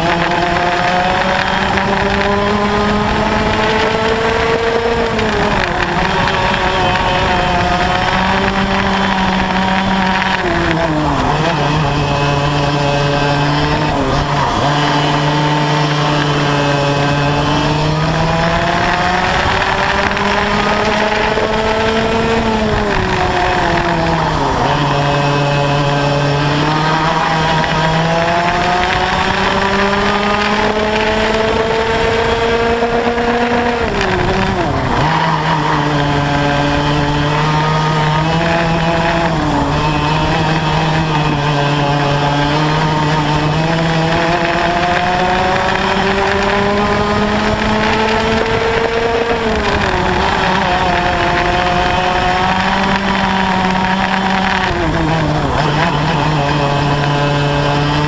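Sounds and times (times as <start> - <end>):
kart engine revving: 0.0 - 58.0.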